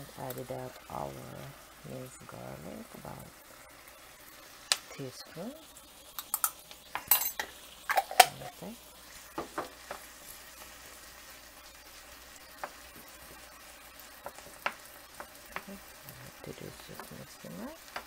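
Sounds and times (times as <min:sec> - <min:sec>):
food sizzling in oil: 0:00.0 - 0:18.0
wooden spoon knocking on a pan: 0:09.4 - 0:10.0.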